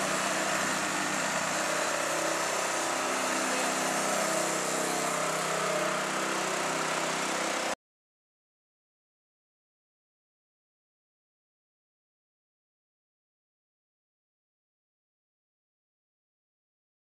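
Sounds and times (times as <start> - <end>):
engine running vacuum pump: 0.0 - 7.8.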